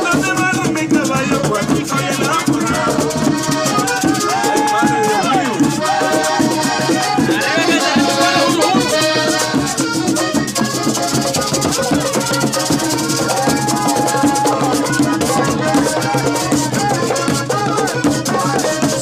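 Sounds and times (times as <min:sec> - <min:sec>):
accordion playing fast tune: 0:00.0 - 0:19.0
hand drums: 0:00.0 - 0:19.0
scratchy high percussion: 0:00.0 - 0:19.0.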